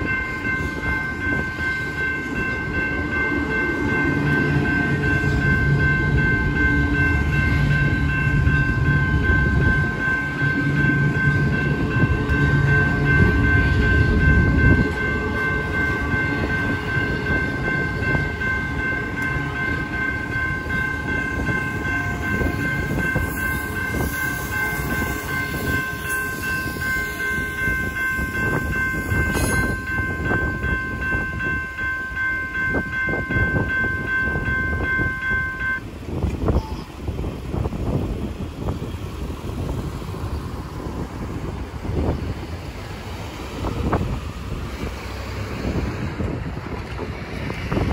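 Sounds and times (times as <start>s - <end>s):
crossing signal bell ringing: 0.0s - 37.0s
train wheels rumbling and clacking: 0.0s - 47.9s.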